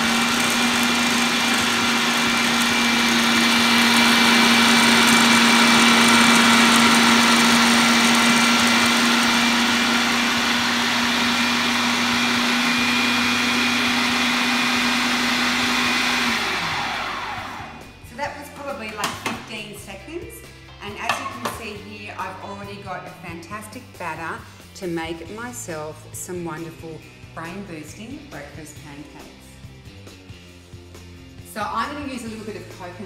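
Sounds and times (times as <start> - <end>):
food processor running: 0.0 - 17.9.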